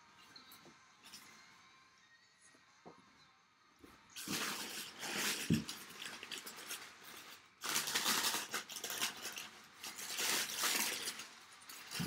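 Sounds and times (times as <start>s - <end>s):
paper crinkling and rustling: 4.2s - 12.0s.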